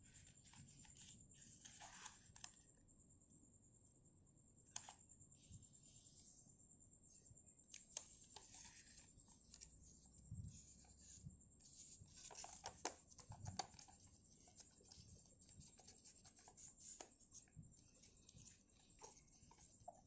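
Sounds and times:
small ticks: 4.7 - 5.2, 7.6 - 10.0
paper rustling and crinkling: 11.8 - 20.0.

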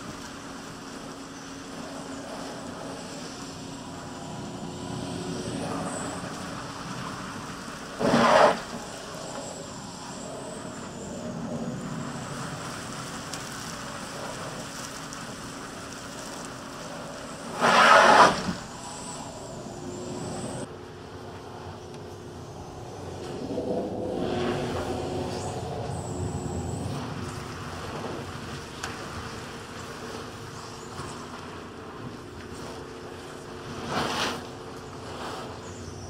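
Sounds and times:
vacuum hose rushing: 4.2 - 9.2, 17.4 - 20.6.

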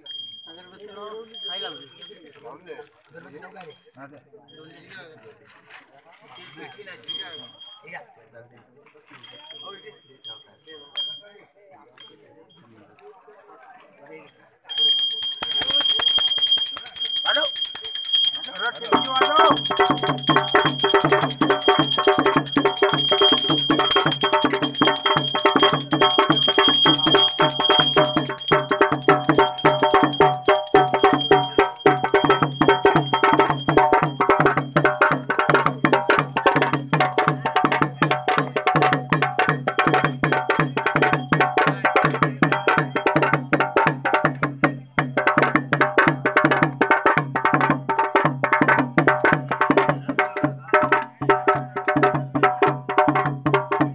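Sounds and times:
bell ringing: 0.0 - 2.6, 6.4 - 8.0, 9.2 - 11.4, 14.7 - 49.9
fast steady drumming: 14.7 - 53.9.

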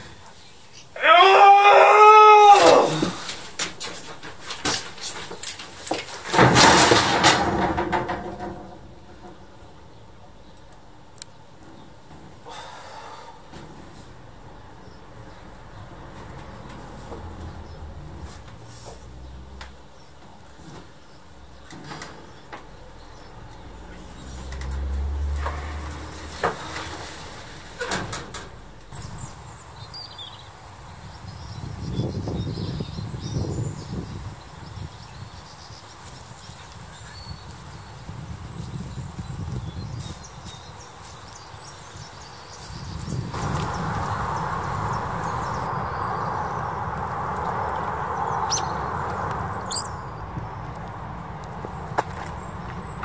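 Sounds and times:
metal garage door knocks: 6.2 - 9.4
wind rumble on microphone: 23.6 - 53.0
steady outdoor rushing noise: 23.7 - 53.0
high bird chirps: 41.4 - 50.8.

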